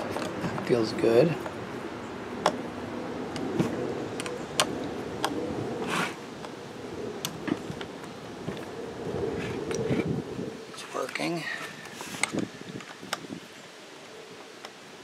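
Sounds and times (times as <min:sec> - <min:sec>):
short scraping swish: 0:05.8 - 0:06.2.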